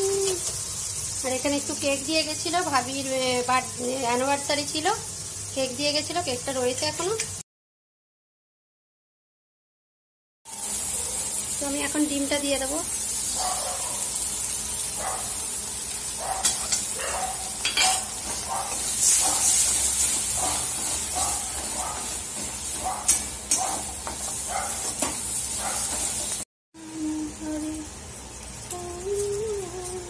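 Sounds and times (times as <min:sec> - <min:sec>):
eggs sizzling in oil: 0:00.0 - 0:07.4, 0:10.5 - 0:30.0
spatula clinking against pan: 0:16.4 - 0:16.9, 0:17.6 - 0:18.1, 0:22.4 - 0:24.3
spatula scraping pan: 0:17.6 - 0:26.4.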